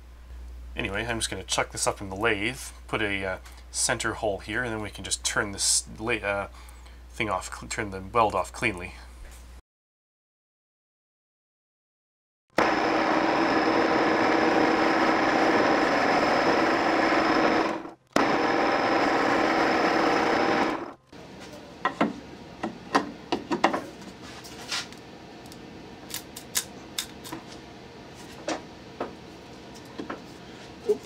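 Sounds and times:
metal lathe cutting with whine: 12.6 - 20.9.

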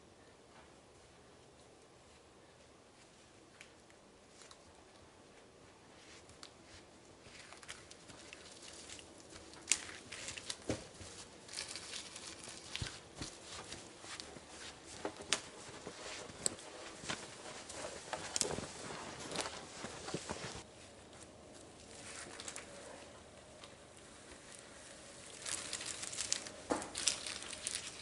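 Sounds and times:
branches snapping and crackling: 7.6 - 13.1, 25.2 - 28.0.

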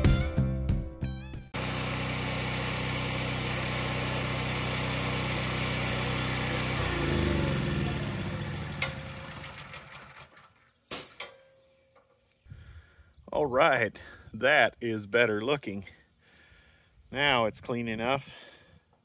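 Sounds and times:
pressure washer engine running: 1.6 - 10.5.

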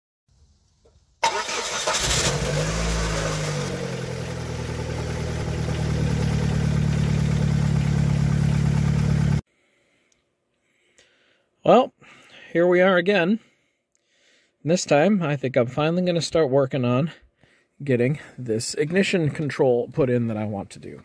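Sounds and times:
car engine starting and idling: 1.2 - 9.4.

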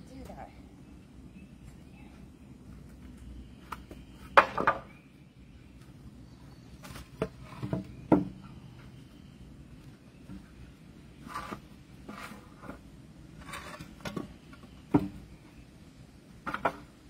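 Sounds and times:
wooden boards knocking and clattering: 3.7 - 5.0, 6.8 - 8.5, 13.5 - 15.2, 16.4 - 17.0.

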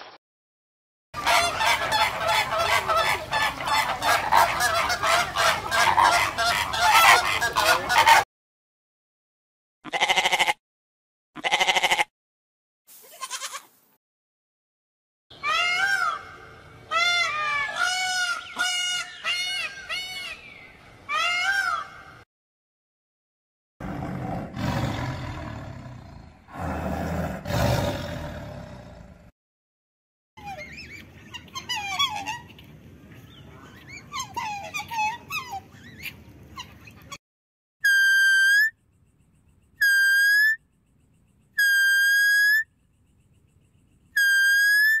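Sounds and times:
peacock calling: 1.2 - 8.2, 15.3 - 22.2, 37.8 - 38.8, 39.4 - 40.8, 41.5 - 42.8, 44.1 - 45.0
tiger roaring: 23.8 - 29.3
deer whistle-like calls: 39.8 - 40.6, 41.6 - 42.6, 44.2 - 45.0.

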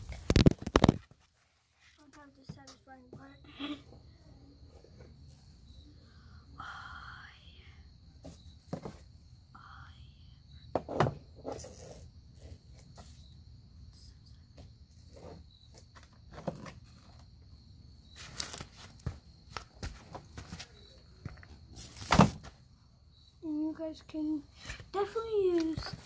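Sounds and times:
broom knocking and scraping wood: 21.7 - 22.6.

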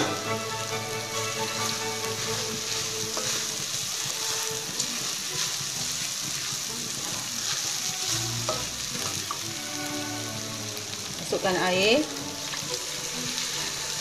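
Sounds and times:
food sizzling in hot oil: 0.0 - 14.0
wooden spatula scraping pot: 1.2 - 5.6.

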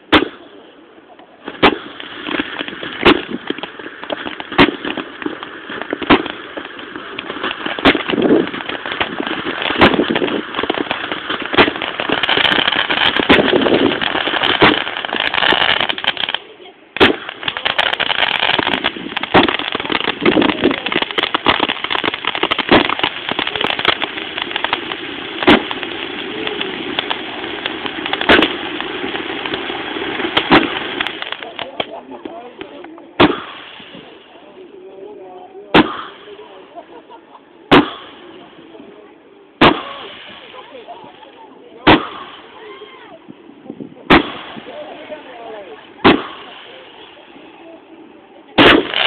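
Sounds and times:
firework bangs: 0.0 - 0.7, 1.4 - 34.7, 35.7 - 47.6, 48.5 - 49.0
fireworks crackling: 0.0 - 49.0.

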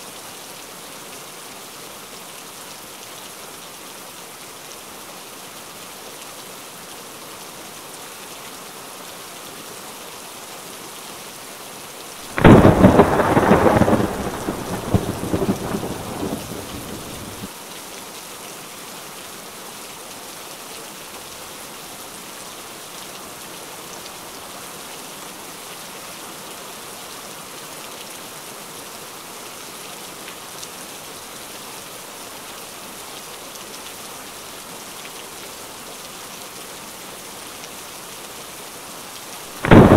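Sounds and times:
steady rain falling: 0.0 - 39.9
crackling thunderclap: 12.3 - 17.5, 39.6 - 39.9.

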